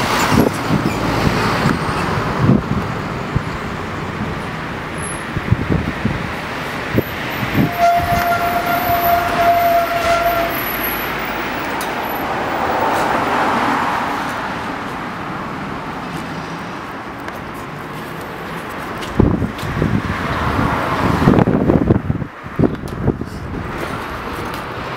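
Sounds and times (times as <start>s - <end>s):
wind buffeting microphone: 0.0s - 16.0s, 16.8s - 24.9s
car passing: 0.0s - 18.6s
street traffic: 0.0s - 24.9s.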